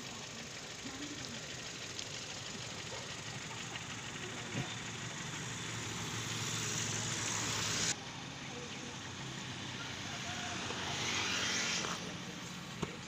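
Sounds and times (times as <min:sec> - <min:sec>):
faint low engine hum: 0:00.0 - 0:13.0
road traffic passing: 0:00.0 - 0:13.0
vehicle passing: 0:04.6 - 0:13.0.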